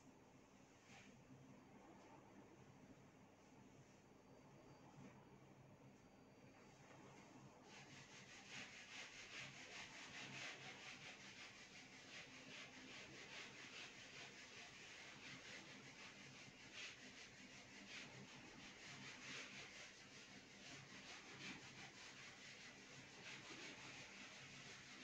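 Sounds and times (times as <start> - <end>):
duster swishing on whiteboard: 6.7 - 25.0.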